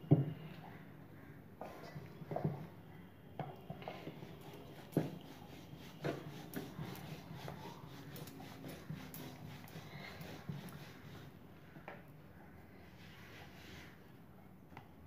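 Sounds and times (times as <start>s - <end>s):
rolling pin rolling dough: 4.0s - 11.4s.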